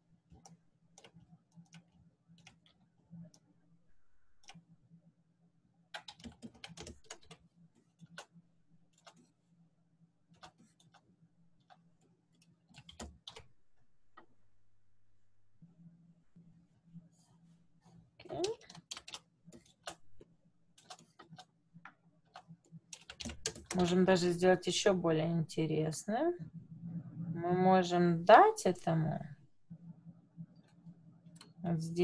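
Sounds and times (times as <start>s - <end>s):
faint low hum: 0.0s - 32.0s
mouse and keyboard clicks: 8.0s - 9.3s, 18.4s - 23.9s.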